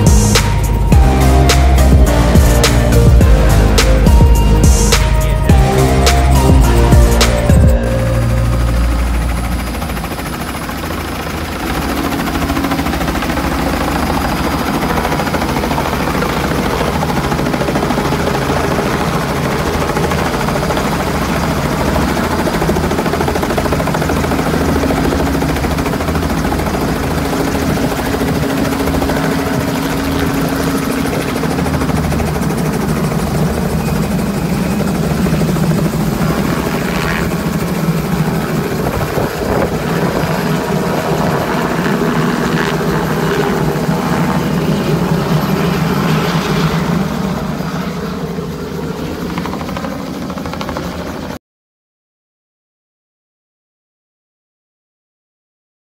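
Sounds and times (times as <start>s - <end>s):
helicopter rotor beating: 0.0s - 51.4s.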